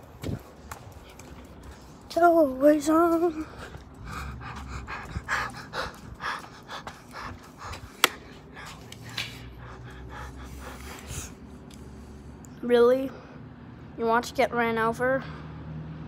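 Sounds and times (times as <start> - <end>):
dog panting: 3.1 - 11.5.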